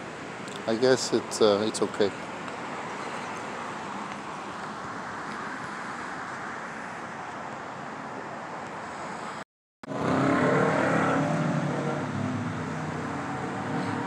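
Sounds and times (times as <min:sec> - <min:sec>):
street traffic: 0:00.0 - 0:14.0
car engine accelerating past: 0:09.9 - 0:14.0.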